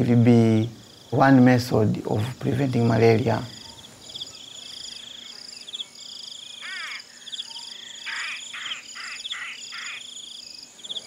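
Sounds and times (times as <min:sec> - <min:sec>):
crickets trilling: 0:00.0 - 0:11.0
short chirping animal call: 0:06.5 - 0:10.2.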